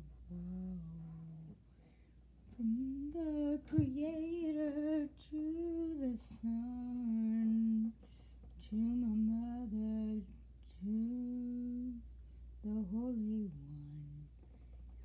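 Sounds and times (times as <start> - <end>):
person humming a slow melody: 0.0 - 1.6.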